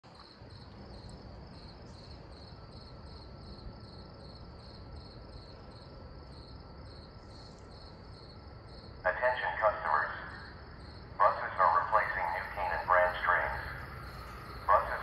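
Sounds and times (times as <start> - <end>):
crickets chirping: 0.1 - 15.0
faint low rumble: 0.2 - 15.0.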